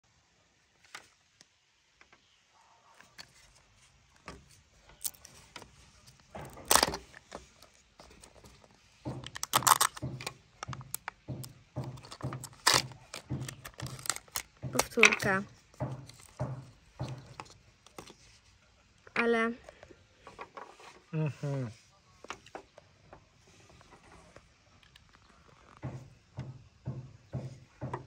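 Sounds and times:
loud plastic crackle: 4.8s - 8.4s, 9.1s - 15.4s
plastic packaging crinkling: 4.8s - 8.5s, 9.2s - 15.4s.

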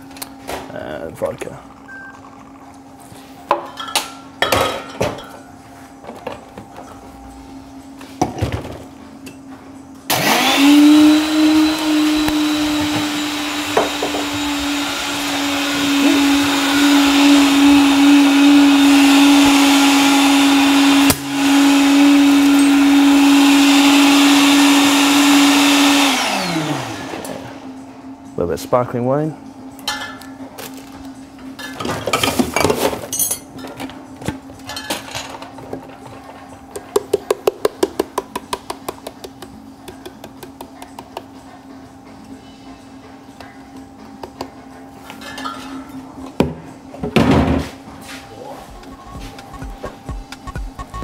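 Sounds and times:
blender crushing ice: 10.1s - 27.4s.

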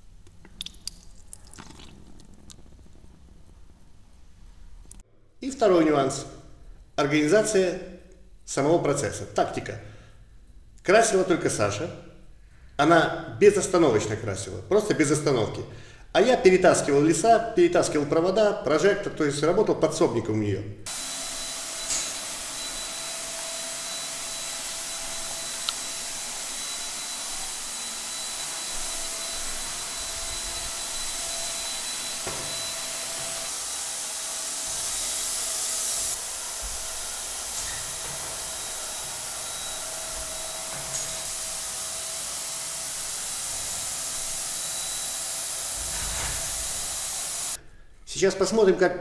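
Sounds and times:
electric paint sprayer hissing: 20.9s - 47.6s.

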